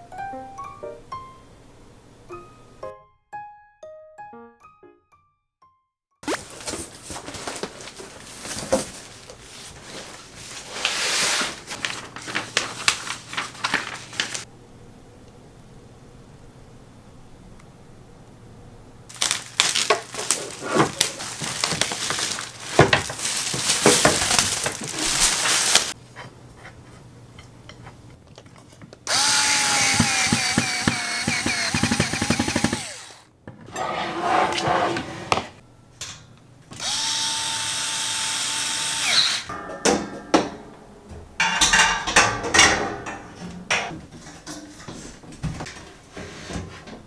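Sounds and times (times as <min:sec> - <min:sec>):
knocks and rattles of parts: 0:19.1 - 0:26.0, 0:27.4 - 0:33.7, 0:39.5 - 0:47.0
power drill driving screws: 0:29.1 - 0:33.3, 0:36.8 - 0:39.5.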